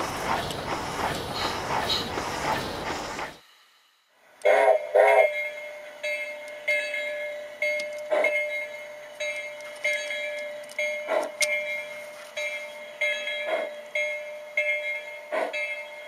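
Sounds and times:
locomotive bell ringing: 0:05.3 - 0:16.0.

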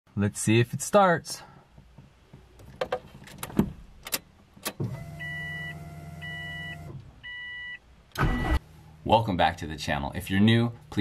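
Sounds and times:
dashboard chime beeping: 0:05.2 - 0:07.8.

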